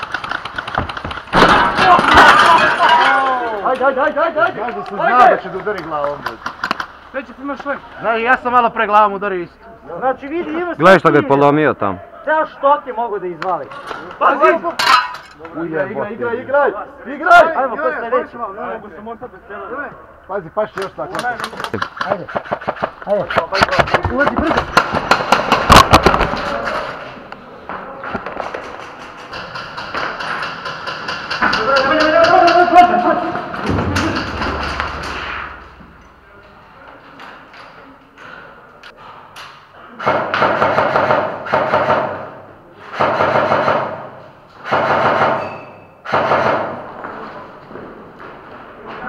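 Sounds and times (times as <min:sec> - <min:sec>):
airsoft guns firing: 0:00.0 - 0:02.6, 0:24.4 - 0:26.9, 0:28.2 - 0:35.6, 0:40.0 - 0:47.0.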